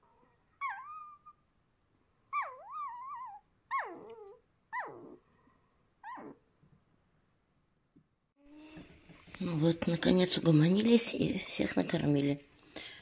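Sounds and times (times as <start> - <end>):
puppies whimpering: 0.0 - 1.4, 2.3 - 5.2.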